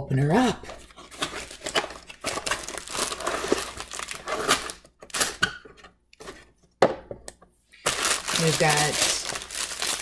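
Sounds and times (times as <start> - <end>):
cardboard and plastic crinkling: 0.7 - 5.4, 7.8 - 10.0.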